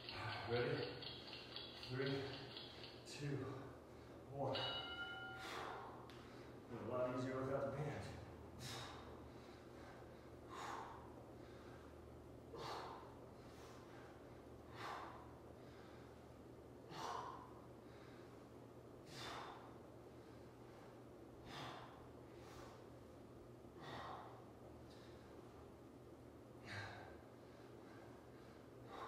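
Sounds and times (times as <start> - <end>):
faint room hum: 0.0 - 29.0
man breathing hard: 8.3 - 23.0, 23.6 - 25.6, 26.6 - 29.0.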